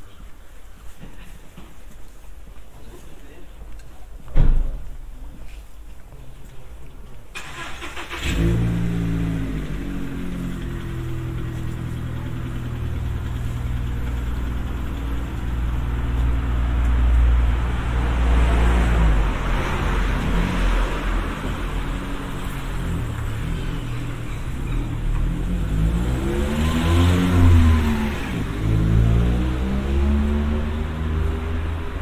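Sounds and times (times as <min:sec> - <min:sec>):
car engine running: 0:09.0 - 0:16.8.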